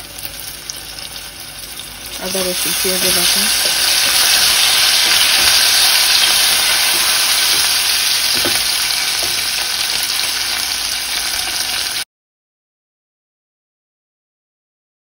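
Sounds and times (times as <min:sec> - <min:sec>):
oil sizzling in a pot: 0:00.0 - 0:12.1
wooden spatula stirring: 0:02.6 - 0:10.4.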